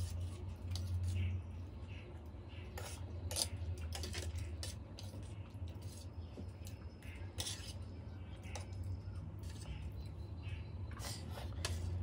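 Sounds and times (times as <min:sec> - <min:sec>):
fork scraping a steel plate: 0:02.8 - 0:04.8, 0:07.0 - 0:07.9, 0:10.9 - 0:12.0.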